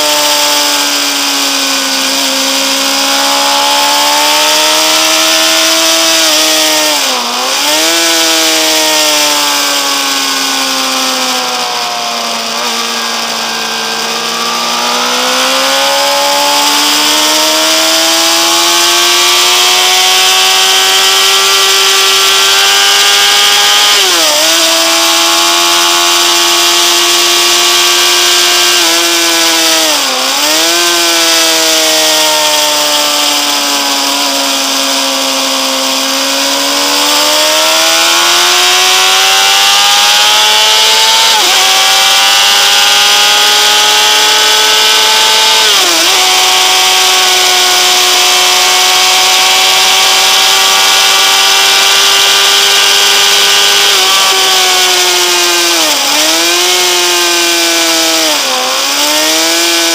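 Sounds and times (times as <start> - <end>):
motorcycle engine revving hard: 0.0 - 59.9.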